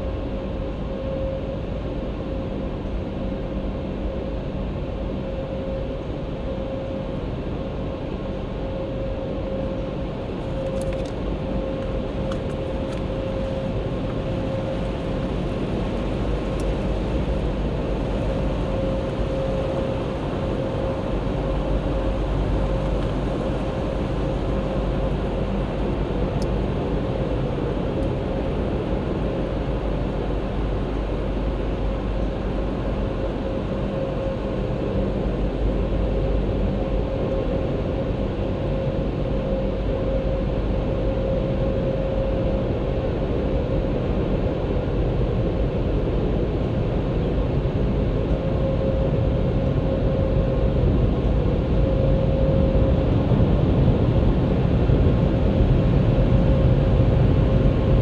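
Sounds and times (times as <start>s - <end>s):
steady whine: 0.0s - 58.0s.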